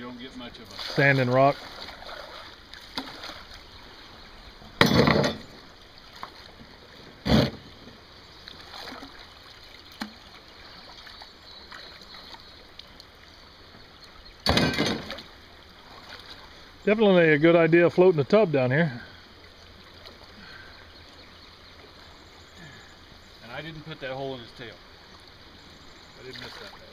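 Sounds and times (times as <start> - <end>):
water sloshing: 0.1 - 26.9
loud splashes and knocks: 0.7 - 3.6, 4.8 - 8.0, 14.4 - 16.4.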